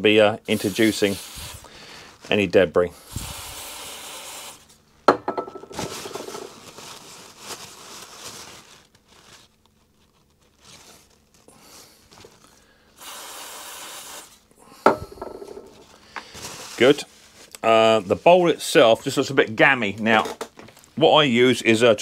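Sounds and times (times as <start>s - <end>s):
aerosol spray hiss: 0.5s - 1.7s, 3.0s - 4.7s, 13.0s - 14.4s
paper towel rubbing: 0.5s - 2.6s, 5.8s - 12.4s, 15.8s - 19.0s.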